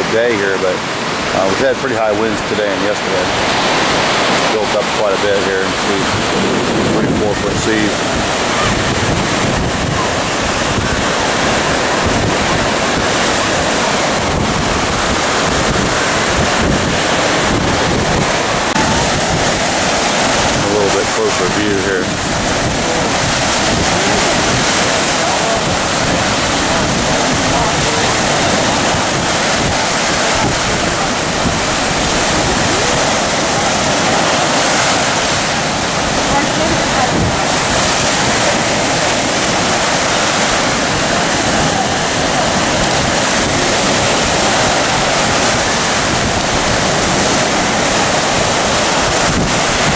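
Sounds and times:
surf breaking on beach: 0.0s - 49.9s
waves crashing: 0.0s - 49.9s
wind buffeting microphone: 0.0s - 49.9s.

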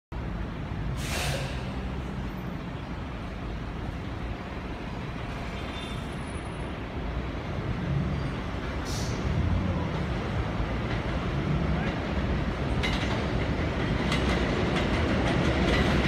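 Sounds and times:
street traffic rumble: 0.1s - 16.0s
short hiss: 1.0s - 1.7s.

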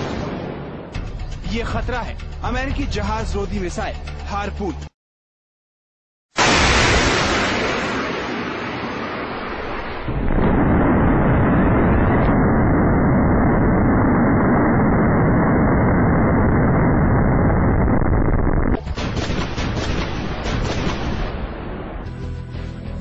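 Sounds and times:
rocket booster roar: 6.4s - 18.8s.

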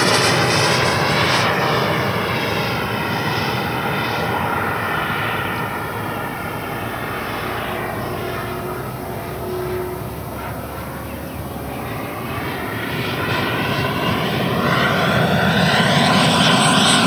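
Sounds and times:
electric ducted fan whining: 3.8s - 16.8s.

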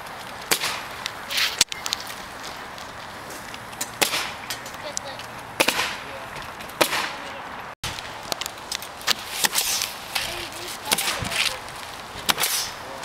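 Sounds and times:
pneumatic nailers firing: 4.0s - 4.4s, 5.6s - 6.0s, 12.3s - 12.7s.

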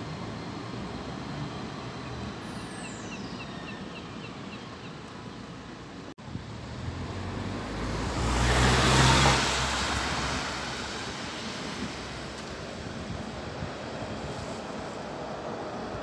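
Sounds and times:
car passing on wet road: 6.6s - 16.0s.

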